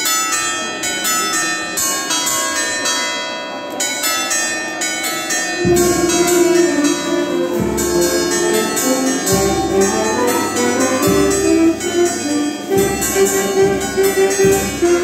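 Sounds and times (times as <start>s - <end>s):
church bells pealing: 0.0s - 15.0s
deep held bell tone: 5.6s - 15.0s.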